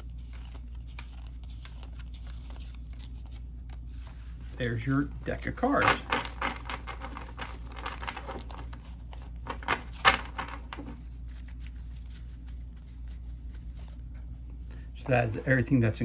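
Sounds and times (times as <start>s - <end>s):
playing cards flicking and clicking: 0.0s - 4.3s, 5.7s - 14.2s.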